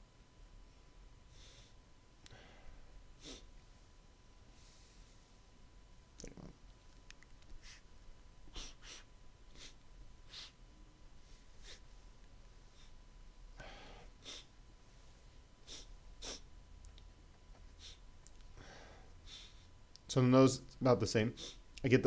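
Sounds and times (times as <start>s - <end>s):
man sniffing: 1.3s - 3.5s, 8.5s - 10.6s, 11.6s - 11.8s, 13.6s - 14.5s, 15.6s - 16.5s, 17.6s - 18.0s, 18.6s - 19.7s, 21.3s - 21.6s.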